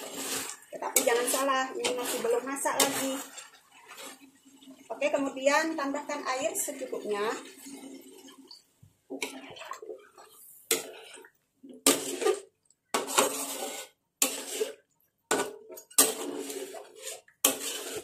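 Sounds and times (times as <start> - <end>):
metal spatula scraping wok: 0.0 - 8.4, 10.2 - 11.2, 11.8 - 18.0.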